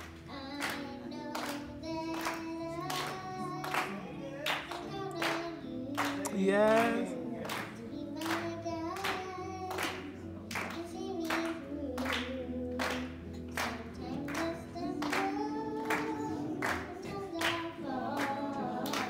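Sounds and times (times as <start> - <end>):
handclaps keeping time: 0.0 - 19.0
voices singing gospel in harmony: 0.3 - 19.0.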